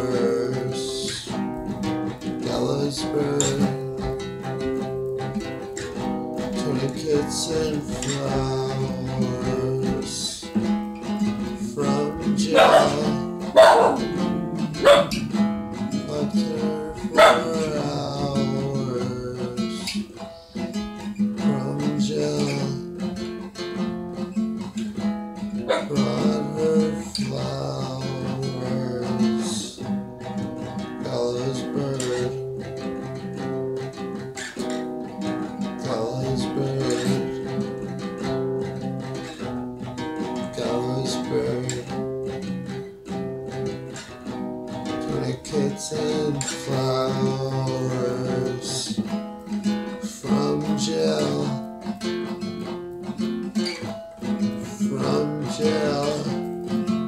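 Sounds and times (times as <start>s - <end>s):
acoustic guitar strummed and picked: 0.0s - 57.0s.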